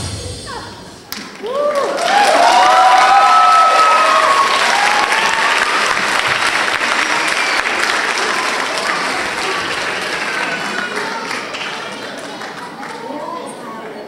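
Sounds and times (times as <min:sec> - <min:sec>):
audience applauding and cheering: 0:01.1 - 0:13.0
high whoops: 0:01.4 - 0:05.8.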